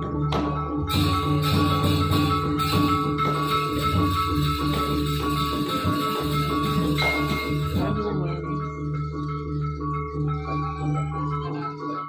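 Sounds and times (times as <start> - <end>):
steady percussion: 0.0 - 8.3
metallophones and gongs ringing: 0.0 - 8.8.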